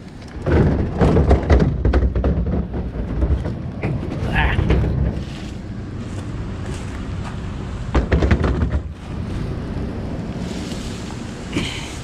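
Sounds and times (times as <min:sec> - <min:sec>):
rubber tire knocking and rustling: 0:00.0 - 0:09.5
wind rumble on microphone: 0:00.0 - 0:12.0.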